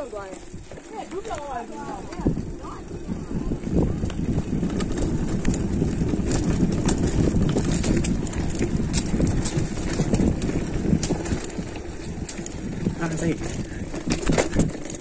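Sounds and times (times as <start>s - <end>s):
mountain bike clattering on dirt trail: 0.0s - 15.0s.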